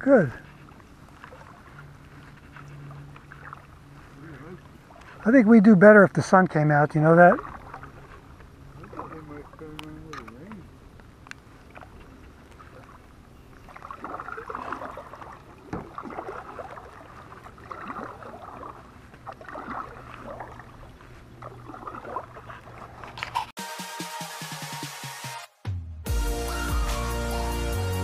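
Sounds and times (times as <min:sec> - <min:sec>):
kayak paddle splashing: 0:00.0 - 0:23.6
electronic music: 0:23.6 - 0:28.0.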